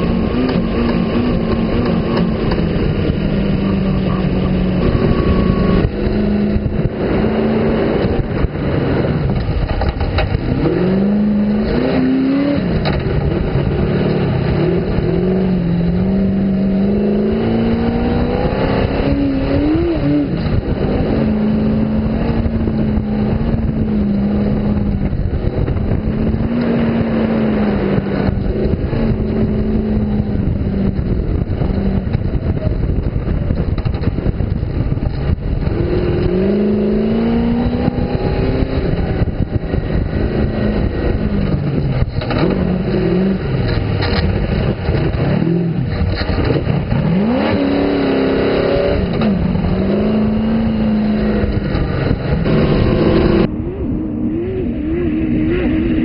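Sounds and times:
engine revving under load: 0.0s - 33.2s, 33.8s - 56.0s.

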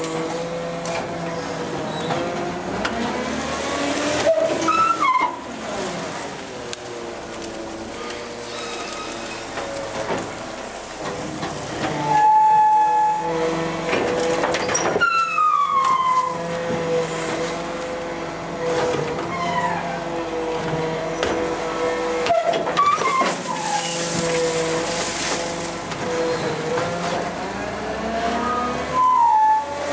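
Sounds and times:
garbage truck hydraulics whining: 0.0s - 29.9s
metallic squeals: 4.2s - 5.4s, 8.4s - 9.6s, 12.0s - 13.8s, 14.6s - 17.4s, 22.2s - 24.8s
green waste tumbling into hopper: 22.6s - 27.4s.

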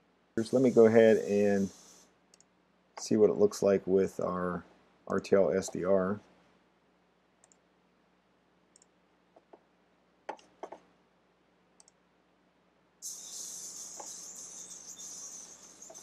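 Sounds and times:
radio static hiss: 0.4s - 2.0s, 13.0s - 16.0s
mouse clicks: 7.4s - 7.6s, 8.8s - 9.6s, 11.8s - 12.0s.

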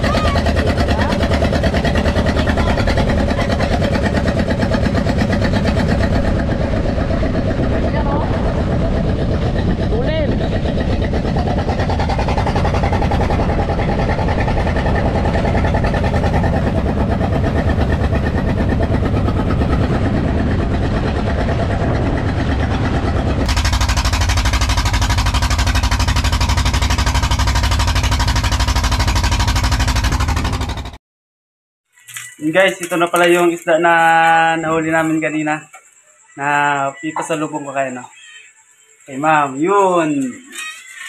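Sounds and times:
engine throbbing: 0.0s - 31.0s.

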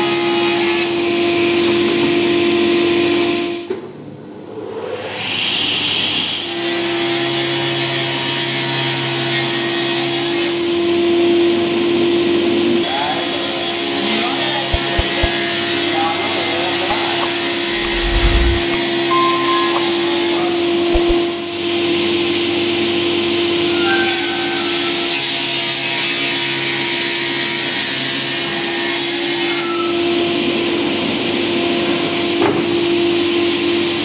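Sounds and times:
low thumps: 14.7s - 15.4s, 16.9s - 19.0s, 20.9s - 21.2s
panel saw cutting board: 14.8s - 15.4s.

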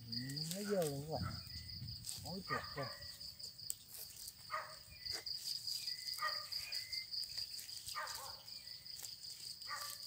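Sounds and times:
crickets trilling: 0.0s - 10.0s.

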